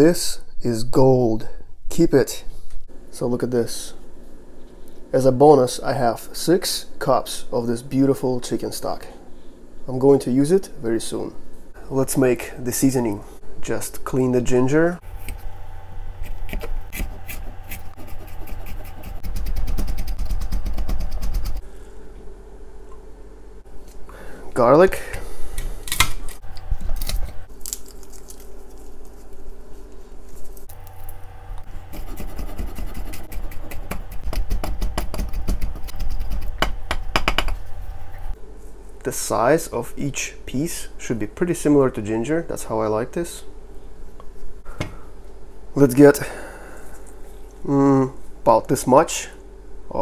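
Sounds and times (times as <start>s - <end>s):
blade scraping garlic: 16.2s - 21.6s, 30.7s - 36.7s.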